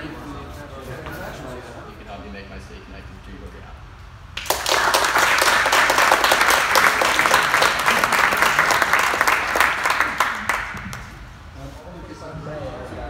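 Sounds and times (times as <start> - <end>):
audience applauding: 4.4 - 11.3.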